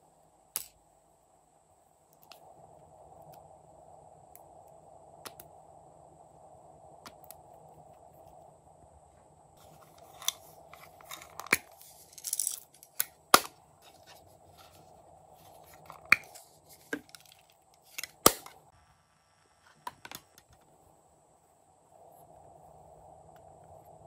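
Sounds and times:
sequins rustling: 9.6 - 18.7.

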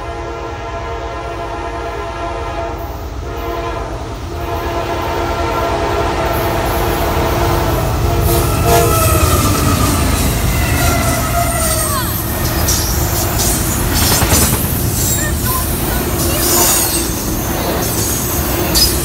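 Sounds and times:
locomotive air horn blasts: 0.0 - 11.9
train wheels on rails: 2.7 - 19.0
locomotive engine rumble: 6.1 - 19.0.

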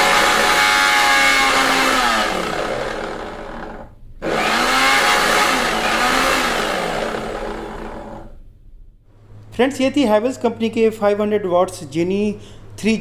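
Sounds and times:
mixer grinder motor whining: 0.0 - 8.4.

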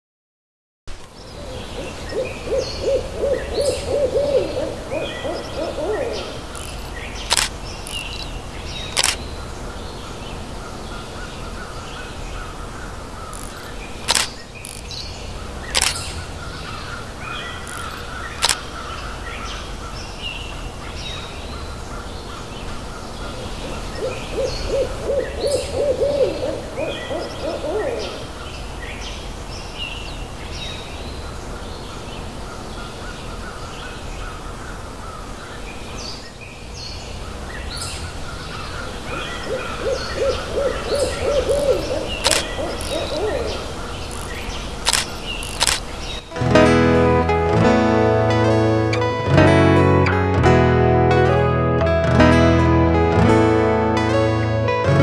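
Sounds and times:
small birds chirping: 1.0 - 46.4
low repeated bird call: 1.2 - 46.4
camera shutter clicks: 6.5 - 8.2, 8.9 - 9.2, 13.4 - 14.9, 15.7 - 16.2, 17.6 - 18.7, 42.2 - 43.2, 44.1 - 46.2.

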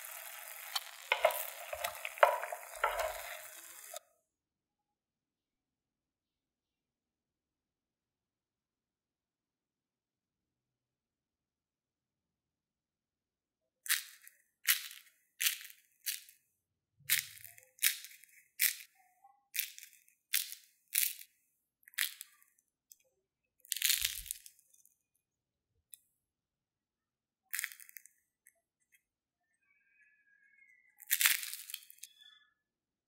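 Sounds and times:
crunching fried food: 0.0 - 4.0, 17.1 - 18.9, 23.6 - 25.0, 31.0 - 32.2.

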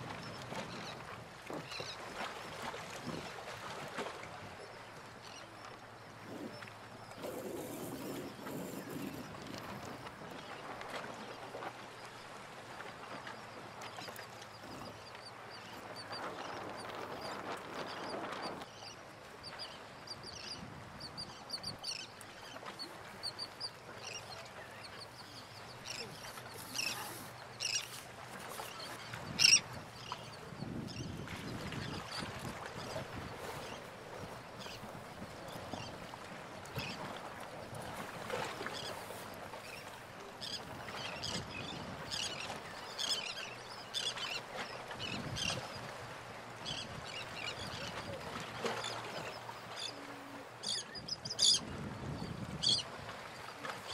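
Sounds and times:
waterbirds calling: 0.0 - 53.9
wind: 0.0 - 53.9
birds calling: 23.2 - 32.3.

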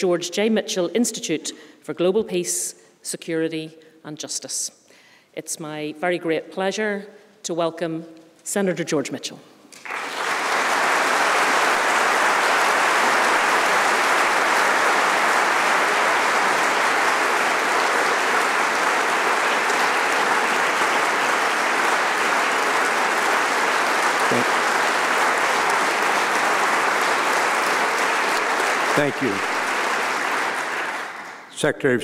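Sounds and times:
audience applauding: 9.7 - 31.6.

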